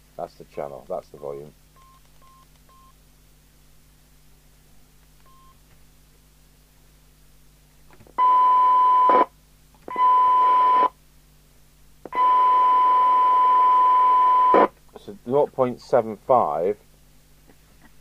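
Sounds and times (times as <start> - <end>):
radio test tone: 12.2 - 14.7.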